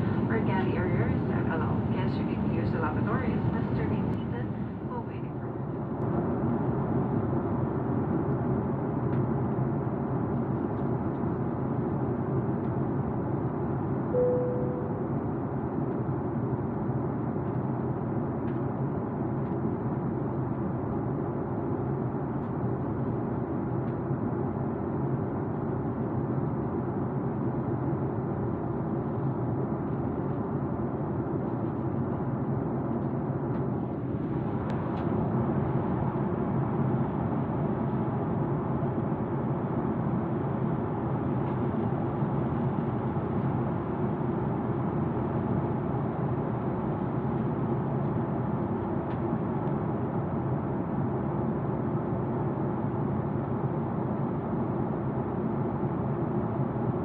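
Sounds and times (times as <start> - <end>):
airliner cabin noise: 0.0 - 57.0.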